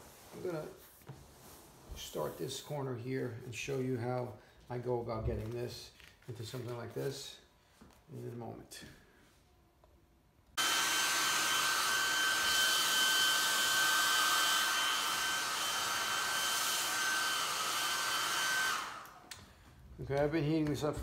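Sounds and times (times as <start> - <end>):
heat gun blowing with high whine: 10.6 - 19.5.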